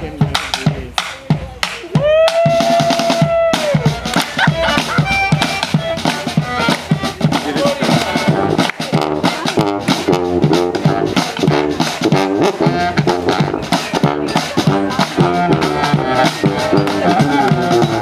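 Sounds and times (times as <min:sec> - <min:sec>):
steady drum beat: 0:00.0 - 0:18.0
street band playing: 0:00.0 - 0:18.0
low horn notes: 0:07.9 - 0:18.0.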